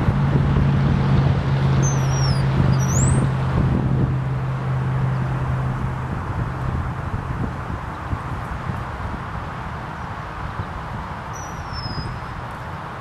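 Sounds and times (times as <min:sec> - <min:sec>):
engine humming: 0:00.0 - 0:13.0
outdoor noise: 0:00.0 - 0:13.0
high whistled bird calls: 0:01.8 - 0:03.3, 0:11.3 - 0:12.2.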